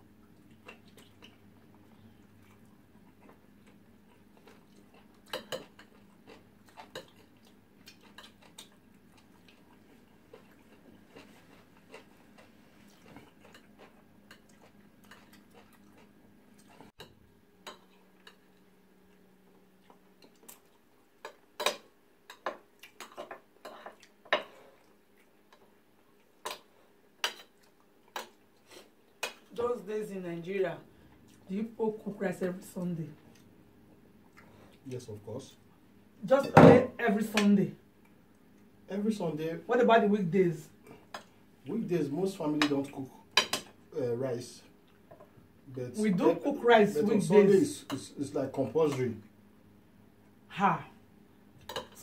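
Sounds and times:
quiet chewing: 0.2s - 29.5s, 33.1s - 35.0s, 38.0s - 38.8s, 44.7s - 45.4s.

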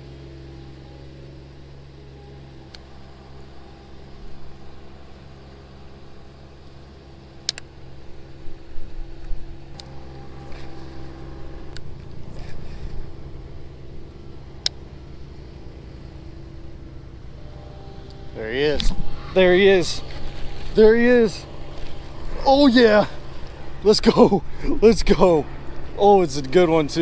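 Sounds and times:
engine hum: 0.0s - 27.0s
sharp clicks: 7.4s - 7.7s.

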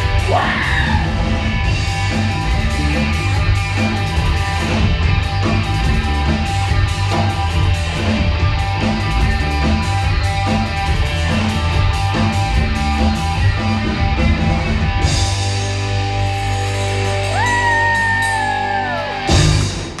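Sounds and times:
live rock band playing: 0.0s - 20.0s.

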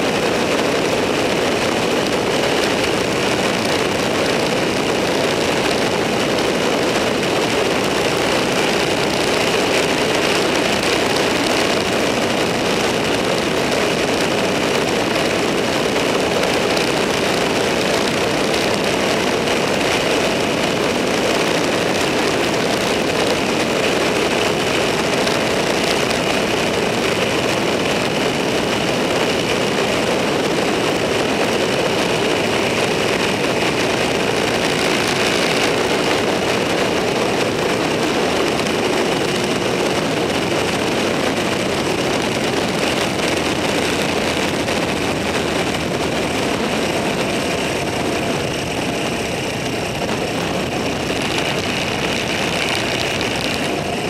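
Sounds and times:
road and wind noise: 0.0s - 54.0s
vehicle engine running: 0.0s - 54.0s.

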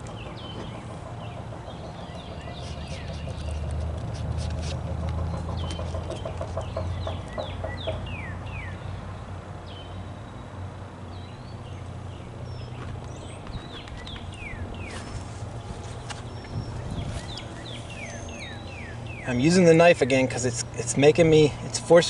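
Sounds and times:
songbird whistling: 13.5s - 15.1s, 16.4s - 19.4s.

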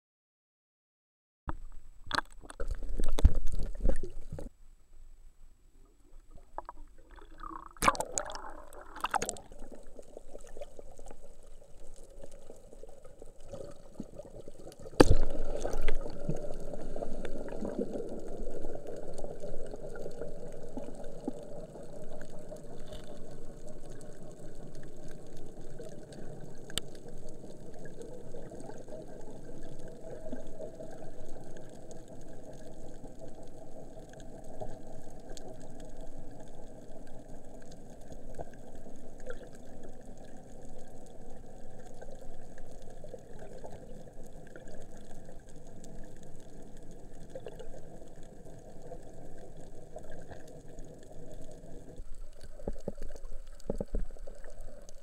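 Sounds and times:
splashy crackles: 14.8s - 16.3s.

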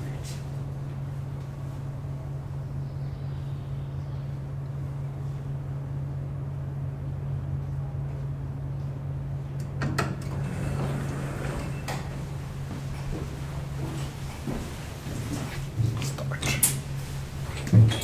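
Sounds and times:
low machinery hum: 0.0s - 18.0s
elevator doors sliding open: 9.8s - 12.5s.

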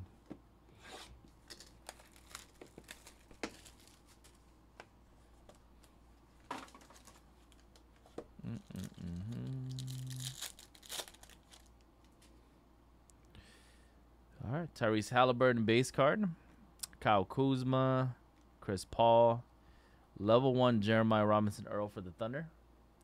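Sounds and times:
foil pack tearing: 1.5s - 4.4s, 9.3s - 11.7s
short low hum: 8.4s - 10.5s.

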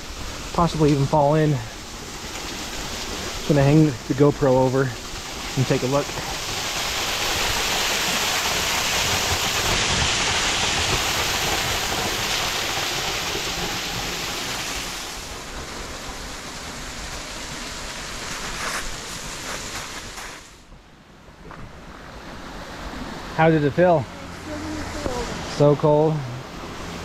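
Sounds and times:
waterfall rushing and splashing: 0.0s - 20.6s, 22.2s - 27.0s.

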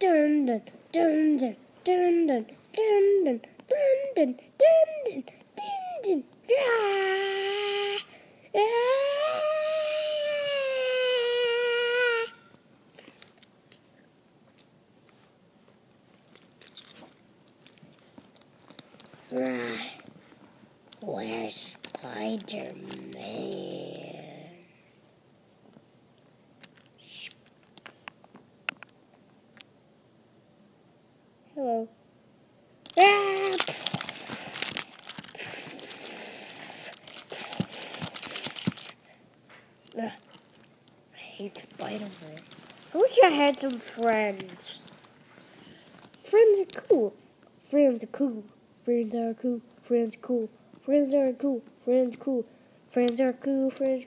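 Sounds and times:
low room hiss: 0.0s - 54.0s
soft handling clicks and rustles: 12.9s - 21.0s, 25.7s - 29.7s, 36.9s - 47.5s
handling noise rustling and scraping: 16.1s - 20.6s, 41.4s - 46.3s.

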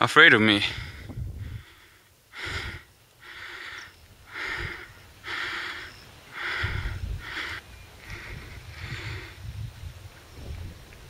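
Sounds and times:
person breathing hard: 0.7s - 9.5s.

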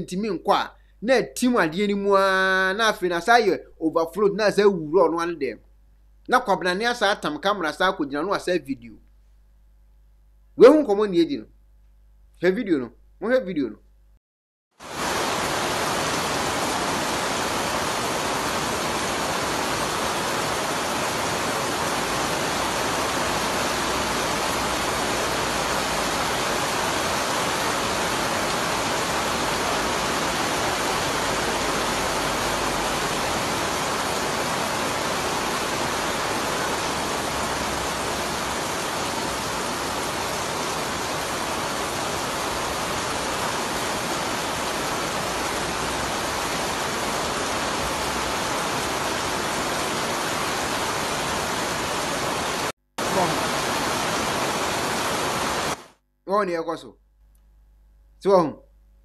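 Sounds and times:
heavy rain pouring: 14.8s - 55.9s.

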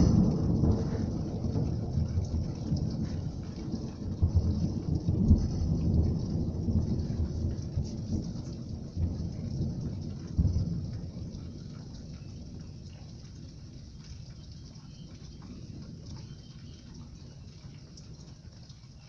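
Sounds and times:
low rolling rumble: 0.0s - 13.5s
heavy rain on a street: 0.0s - 19.0s.

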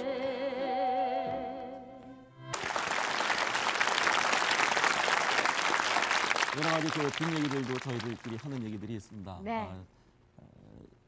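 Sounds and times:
audience applause: 2.5s - 8.9s.

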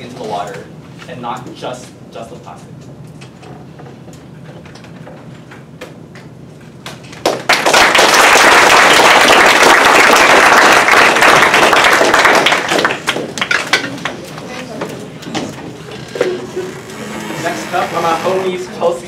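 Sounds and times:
audience applauding: 7.2s - 14.2s.

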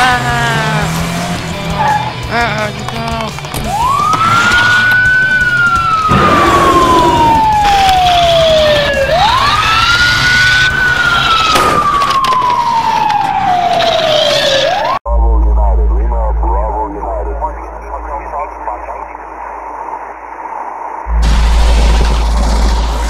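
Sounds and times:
police siren wailing: 0.0s - 2.9s, 3.6s - 17.5s.

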